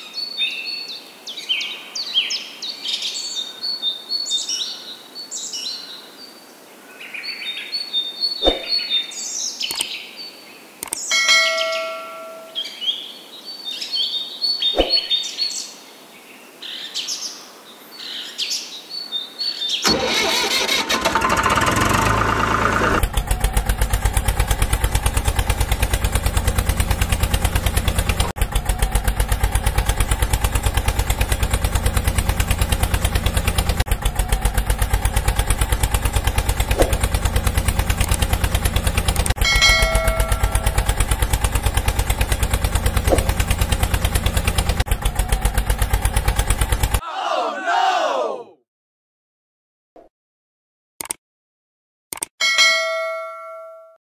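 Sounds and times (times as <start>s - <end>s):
birds chirping: 0.0s - 17.4s
engine starting and chugging: 19.8s - 47.0s.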